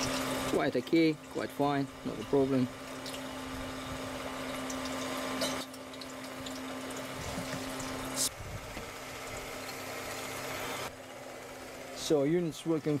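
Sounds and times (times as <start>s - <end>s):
steady hum: 0.0s - 13.0s
oil trickling into plastic can: 2.1s - 8.2s.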